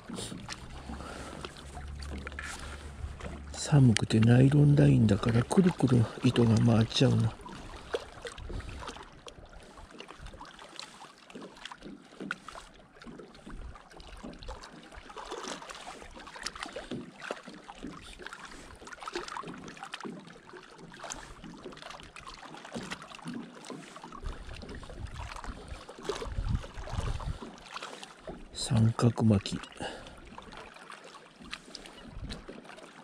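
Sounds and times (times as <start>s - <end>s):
water lapping and splashing: 0.0s - 33.0s
wind rumble on microphone: 8.2s - 8.8s, 24.2s - 27.4s, 32.1s - 32.5s.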